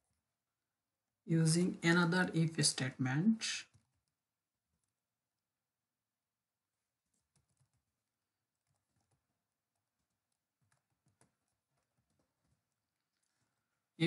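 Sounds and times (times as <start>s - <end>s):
keyboard typing: 3.6s - 5.2s, 6.7s - 13.5s.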